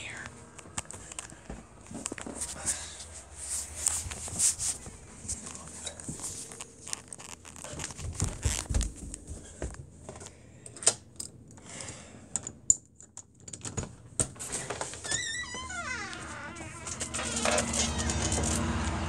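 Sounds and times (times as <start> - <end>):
footsteps on carpeted stairs: 0.3 - 6.6, 7.5 - 10.3.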